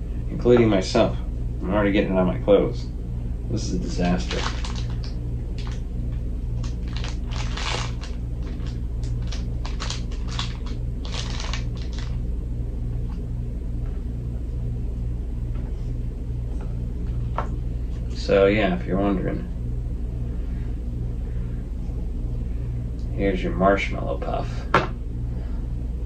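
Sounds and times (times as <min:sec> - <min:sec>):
steady low hum: 0:00.0 - 0:26.0
plastic wrapper crinkling: 0:04.0 - 0:05.8, 0:06.6 - 0:12.2.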